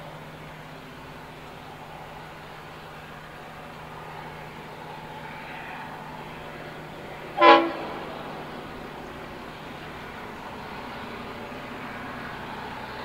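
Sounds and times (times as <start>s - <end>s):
low hum of train: 0.0s - 13.0s
locomotive horn blast: 7.3s - 8.5s.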